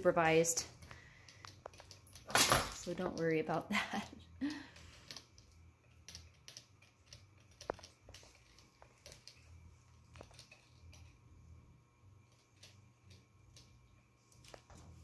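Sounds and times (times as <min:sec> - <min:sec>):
small clicks and ticks from puppies: 0:04.7 - 0:11.2.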